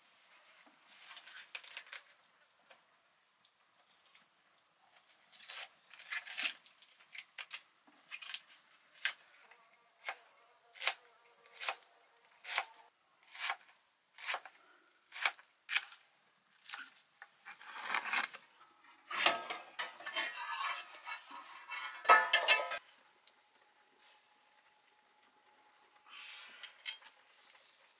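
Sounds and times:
cleaver slicing cabbage: 5.4s - 9.2s, 10.0s - 16.0s, 16.6s - 18.4s.

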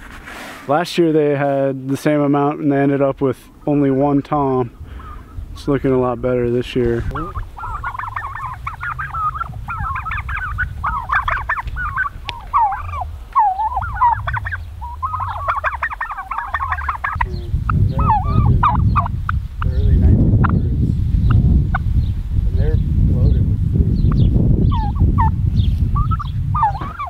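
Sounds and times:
low rumbling noise: 2.8s - 27.0s
turkeys yelping and chirping: 3.4s - 19.8s, 21.2s - 22.1s, 24.0s - 27.0s.

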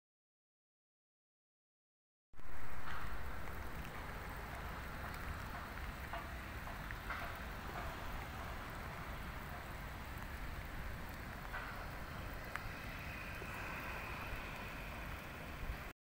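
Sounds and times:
light rain on foliage: 2.4s - 15.9s
low rumble: 2.4s - 15.9s
faint drop ticks: 2.8s - 15.5s.

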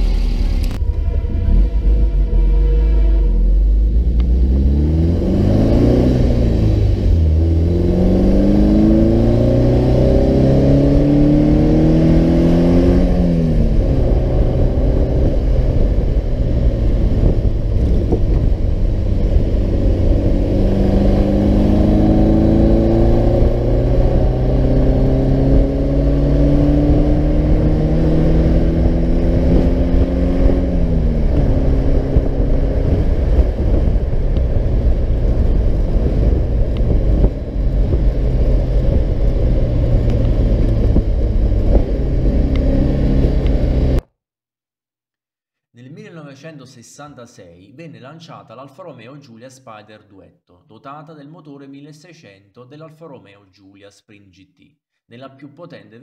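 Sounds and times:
car engine accelerating through gears: 0.0s - 44.0s.

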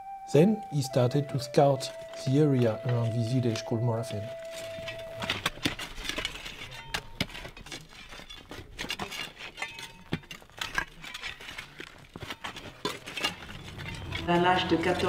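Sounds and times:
soil scraping: 1.0s - 15.0s
metal tools striking stone: 6.6s - 11.4s.

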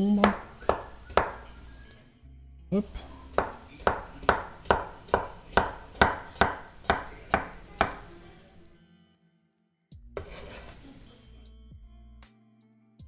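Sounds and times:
knife chopping on wooden board: 0.0s - 1.6s, 2.8s - 8.3s, 10.2s - 11.1s.

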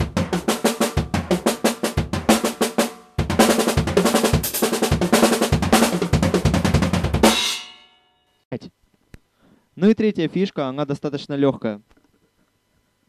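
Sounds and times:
drum kit fast fills: 0.0s - 7.8s
choked cymbal hit: 7.2s - 8.2s.

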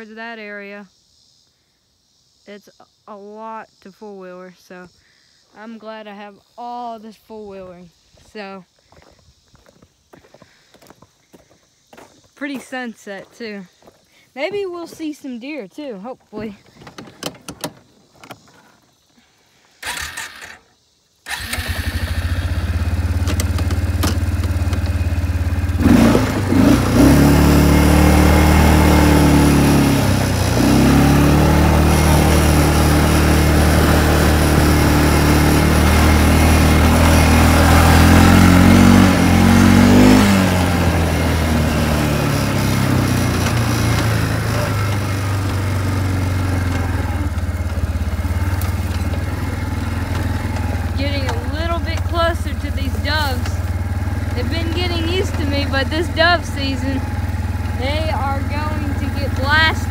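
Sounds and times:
atv engine running: 21.3s - 59.9s.

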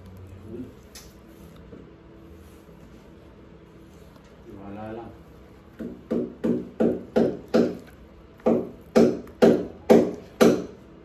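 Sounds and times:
hammer striking into wall: 5.8s - 7.8s, 8.4s - 10.8s.

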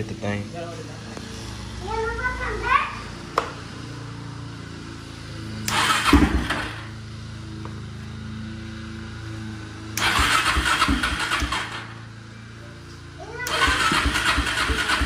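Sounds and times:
atv engine cranking and firing: 5.6s - 7.0s, 9.9s - 12.1s, 13.4s - 15.0s.

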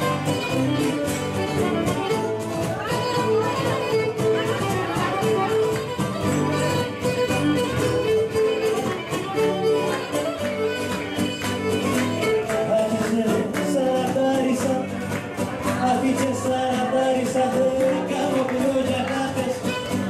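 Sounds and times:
bowed string melody: 0.0s - 13.6s
plucked lutes: 0.0s - 20.0s.

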